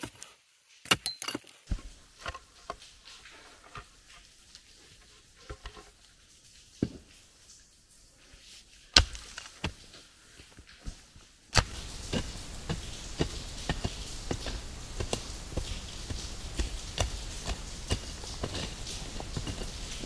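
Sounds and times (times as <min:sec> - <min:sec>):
hand tool striking dirt: 0:00.8 - 0:01.8, 0:11.5 - 0:20.0
pickaxe chopping soil: 0:00.8 - 0:01.9, 0:09.0 - 0:09.6, 0:11.5 - 0:20.0.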